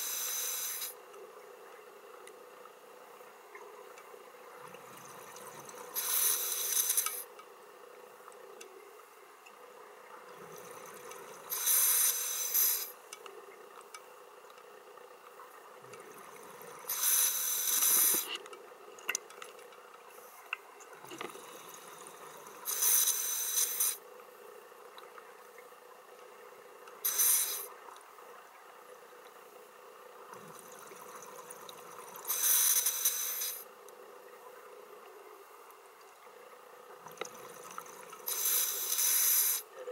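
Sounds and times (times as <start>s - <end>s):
soft diver inhalations: 5.3s - 7.3s, 10.4s - 13.0s, 16.7s - 18.4s, 32.2s - 33.7s, 37.6s - 39.7s.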